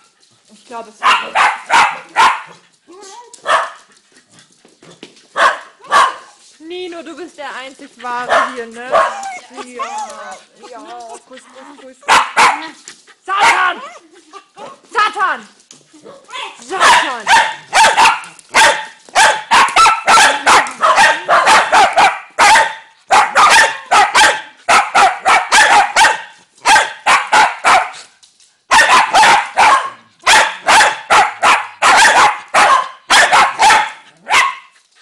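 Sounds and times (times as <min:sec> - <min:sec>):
dogs barking: 0:01.0 - 0:02.6, 0:03.4 - 0:03.9, 0:05.3 - 0:06.4, 0:08.1 - 0:10.6, 0:12.0 - 0:14.0, 0:16.0 - 0:28.1, 0:28.7 - 0:34.8.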